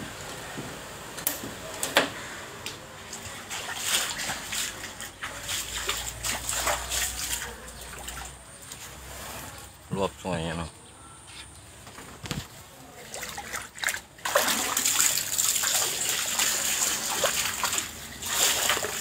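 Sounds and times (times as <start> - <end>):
water splashing from wading: 3.1 - 8.4, 12.9 - 19.0.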